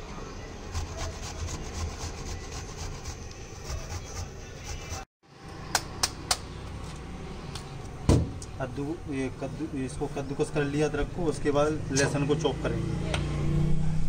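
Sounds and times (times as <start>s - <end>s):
ginger rasped on a grater: 0.7s - 5.0s.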